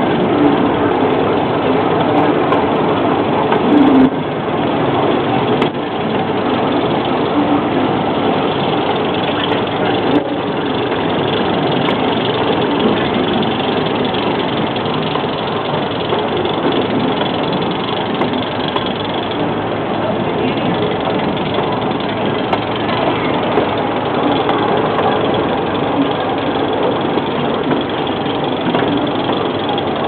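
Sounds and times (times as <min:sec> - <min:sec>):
train cars rolling on track: 0:00.0 - 0:30.0
train engine running: 0:00.0 - 0:30.0.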